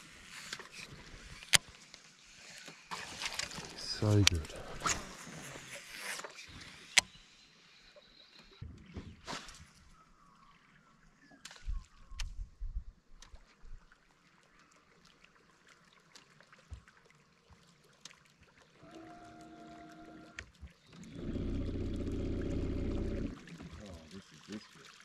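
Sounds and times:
propeller churning water: 15.5s - 25.0s
electric trolling motor humming: 18.8s - 20.4s, 21.0s - 23.4s.

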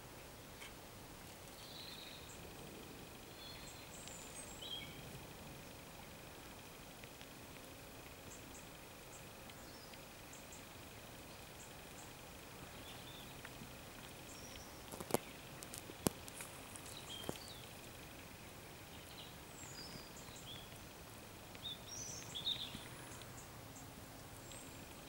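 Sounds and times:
bird chirps: 1.5s - 2.5s, 3.2s - 5.1s, 8.2s - 13.5s, 16.4s - 20.9s, 21.6s - 25.0s.

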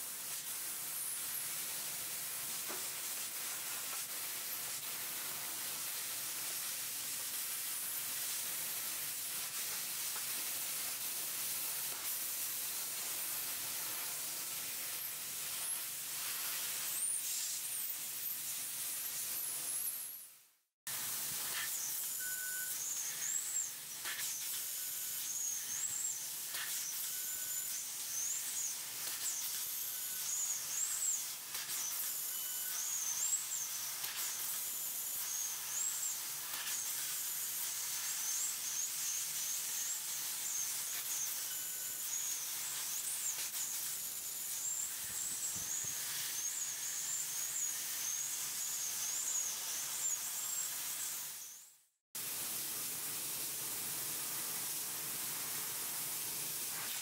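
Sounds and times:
high wavering whistle: 21.5s - 36.8s.

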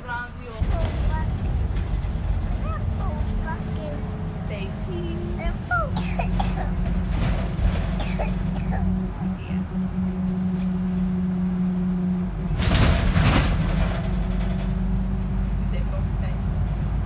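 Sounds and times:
bus engine drone: 0.0s - 17.0s.

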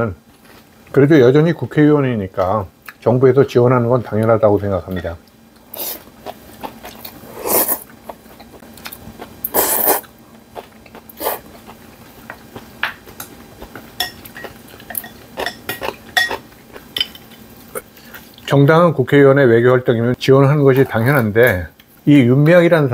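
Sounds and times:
man slurping noodles: 7.3s - 7.8s, 9.5s - 10.1s, 11.2s - 11.5s
chopsticks and spoon clicking on bowls: 12.2s - 17.4s.

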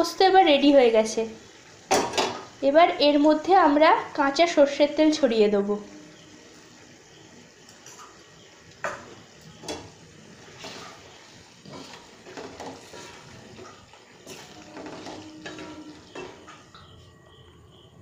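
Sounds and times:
steady hiss: 0.0s - 18.0s
spatula scraping a steel pan: 10.4s - 16.7s.

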